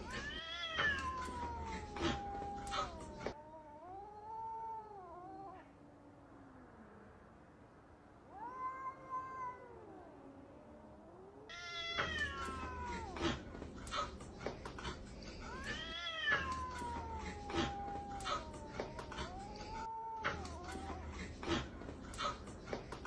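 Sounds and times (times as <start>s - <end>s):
cat meowing and yowling: 0.0s - 5.8s, 8.3s - 13.4s, 15.4s - 21.2s.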